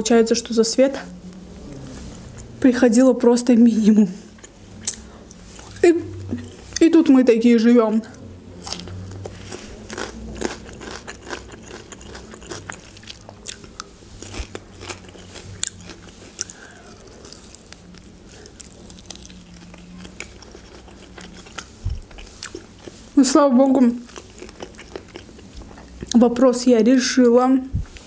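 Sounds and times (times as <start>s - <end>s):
chewing grilled chicken: 8.0s - 26.2s.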